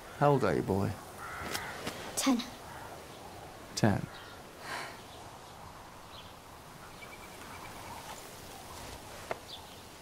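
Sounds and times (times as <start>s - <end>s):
bird trill: 6.1s - 8.2s.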